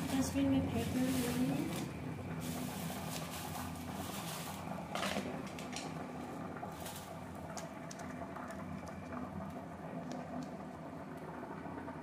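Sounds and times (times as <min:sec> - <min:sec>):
plastic bag rustling: 0:00.0 - 0:08.1
low background hum: 0:00.0 - 0:12.0.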